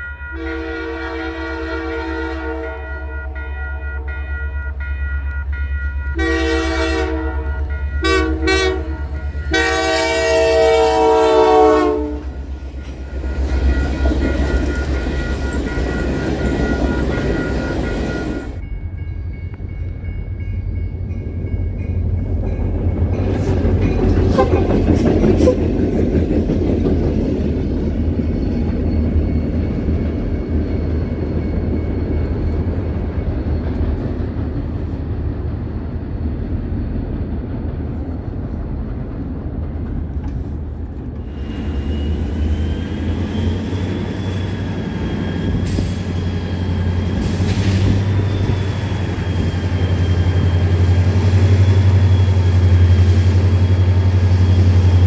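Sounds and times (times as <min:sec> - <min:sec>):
diesel locomotive engines droning: 0:00.0 - 0:55.0
train cars rolling on rails: 0:00.0 - 0:55.0
high wavering squeal: 0:12.2 - 0:22.0, 0:41.2 - 0:55.0.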